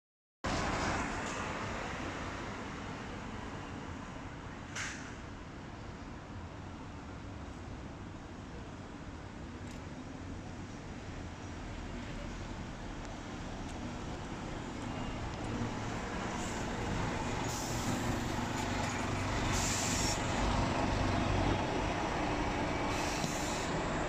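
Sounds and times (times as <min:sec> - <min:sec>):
air brake hisses: 0:04.8 - 0:05.2, 0:17.4 - 0:18.2, 0:19.5 - 0:20.3, 0:22.9 - 0:23.8
bus diesel engine running: 0:11.9 - 0:24.0.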